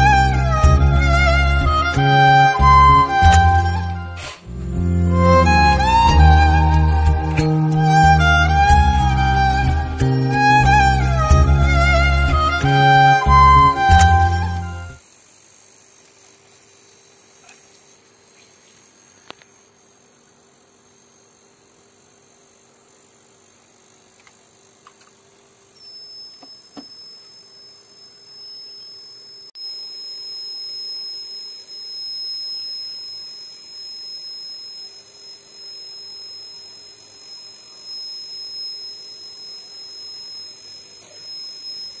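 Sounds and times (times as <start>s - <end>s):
faint hum: 0.0s - 42.0s
high-pitched alarm buzzer: 25.8s - 42.0s.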